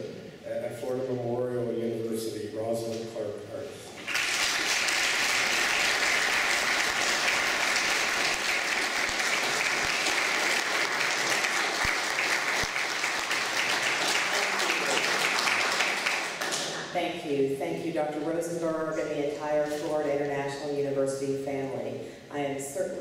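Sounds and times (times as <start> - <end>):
audience applauding: 4.0 - 17.0.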